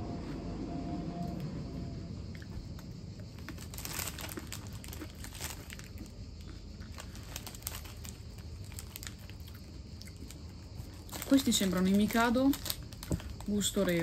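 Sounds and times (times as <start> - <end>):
low hum: 0.0 - 5.0
chewing crunchy biscuits: 2.3 - 14.0.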